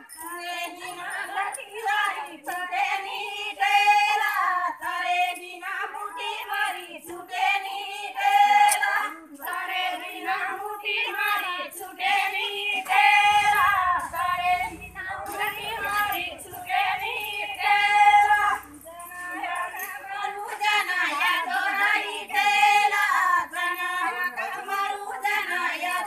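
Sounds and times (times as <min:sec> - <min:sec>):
women singing folk song: 0:00.0 - 0:26.0.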